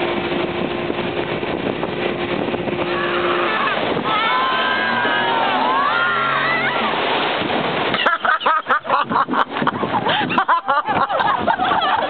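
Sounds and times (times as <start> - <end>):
wind on microphone: 0.0 - 8.2, 8.8 - 12.0
motorboat engine: 0.0 - 12.0
people shouting: 2.9 - 7.0.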